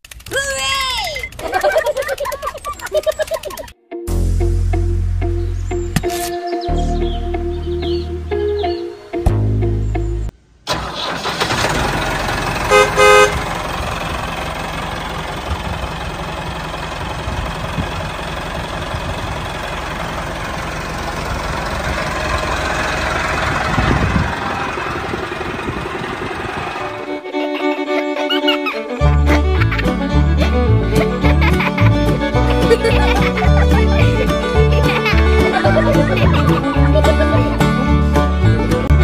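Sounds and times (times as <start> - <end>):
tractor engine running: 10.7 - 28.0, 28.9 - 39.0
horn toots: 12.6 - 13.5.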